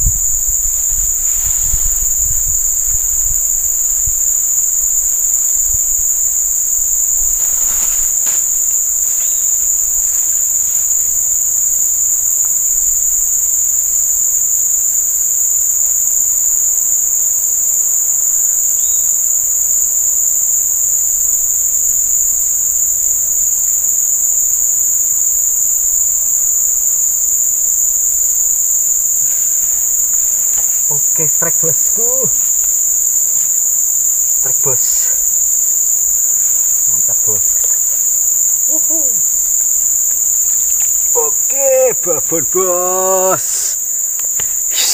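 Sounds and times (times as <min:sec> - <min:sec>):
higher insect drone: 0:00.0 - 0:44.9
insects droning: 0:00.0 - 0:44.9.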